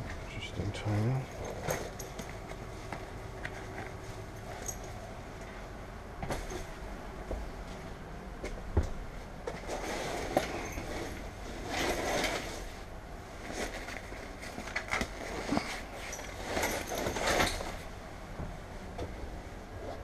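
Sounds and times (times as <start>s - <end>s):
clothing rustle: 9.5s - 18.0s.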